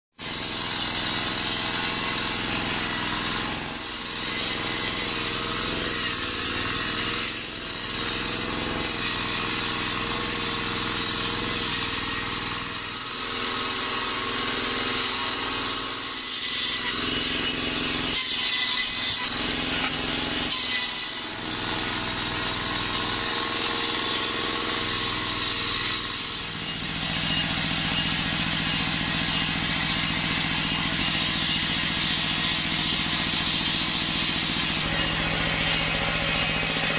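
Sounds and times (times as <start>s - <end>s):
circular saw ripping through log: 0.2s - 36.9s
diesel engine running: 21.4s - 36.9s.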